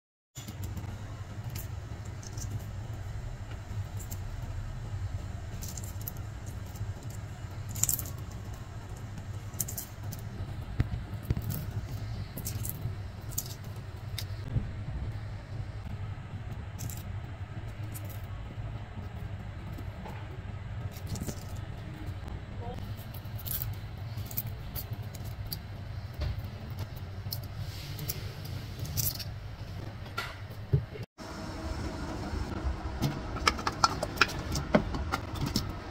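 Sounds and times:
low rumble: 0:00.6 - 0:27.4, 0:31.2 - 0:35.9
egg shell crackling: 0:05.5 - 0:14.4, 0:22.8 - 0:25.8.

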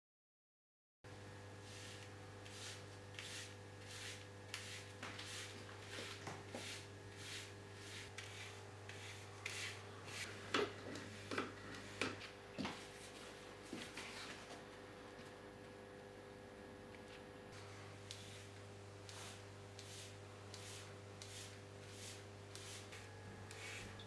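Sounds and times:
brush sweeping across stone: 0:01.6 - 0:10.4, 0:18.1 - 0:24.0.

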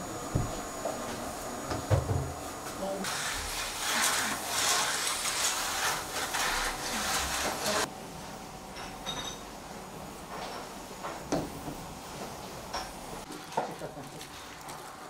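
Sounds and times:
vacuum cleaner hissing: 0:00.0 - 0:07.9.

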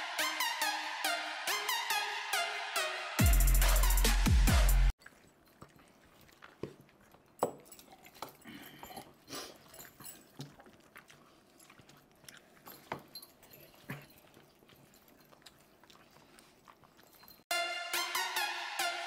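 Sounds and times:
electronic music with heavy bass: 0:00.0 - 0:04.9
people chewing: 0:05.0 - 0:17.5.

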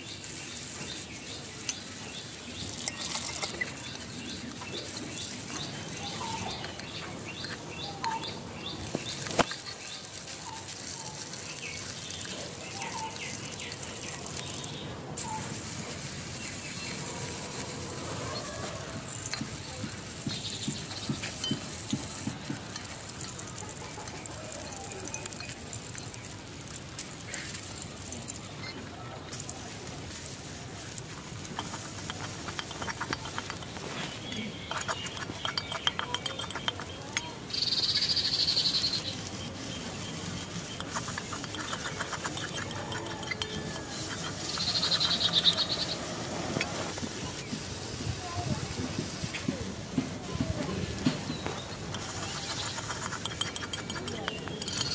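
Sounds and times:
food sizzling in hot oil: 0:00.0 - 0:54.9
metal spatula stirring in pan: 0:29.5 - 0:37.5, 0:38.8 - 0:48.0, 0:51.0 - 0:54.9.

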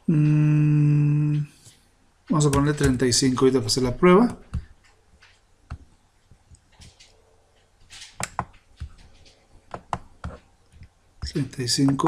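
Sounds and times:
mouse and keyboard clicks: 0:07.8 - 0:12.0.

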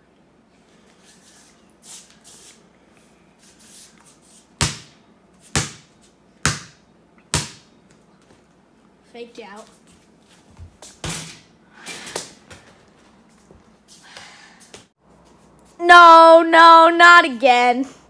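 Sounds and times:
basketball dribbling: 0:04.6 - 0:04.9, 0:05.5 - 0:07.6.

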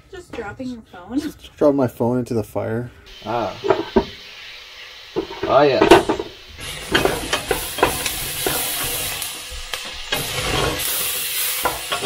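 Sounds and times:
onions sizzling in a pot: 0:03.1 - 0:12.0
wooden spoon scraping a pot: 0:10.1 - 0:12.0.

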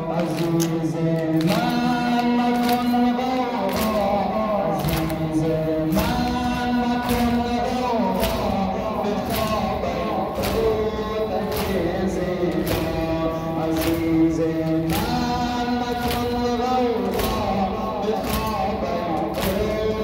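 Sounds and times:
men chanting: 0:00.0 - 0:20.0
rhythmic beating strikes: 0:00.0 - 0:20.0.

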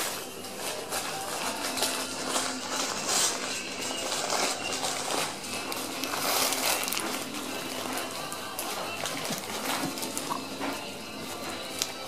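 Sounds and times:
paper ripping: 0:00.0 - 0:07.4
puppies tearing newspaper: 0:00.0 - 0:12.0.

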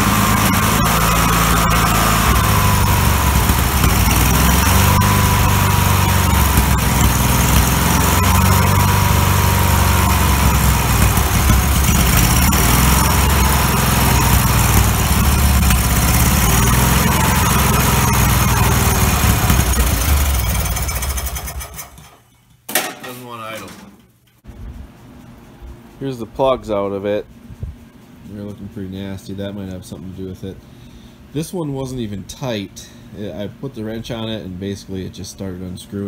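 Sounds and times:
lawn tractor engine running unevenly: 0:00.0 - 0:22.2.

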